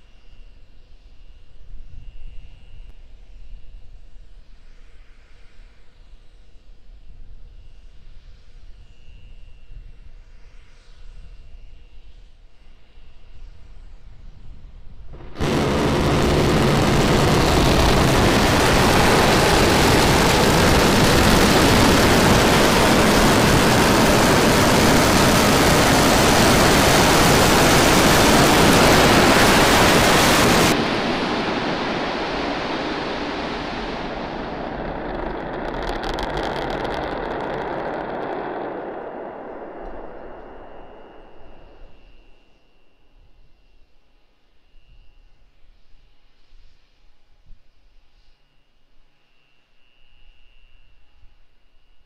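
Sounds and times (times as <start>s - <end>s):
low rumble with crackling: 15.1s - 42.1s
rocket engine roaring: 15.1s - 42.2s.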